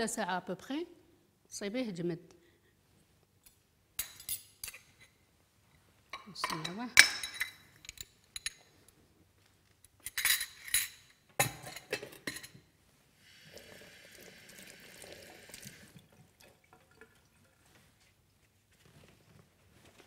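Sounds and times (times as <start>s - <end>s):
glassware and dishes clinking: 6.1s - 8.7s, 10.1s - 12.6s.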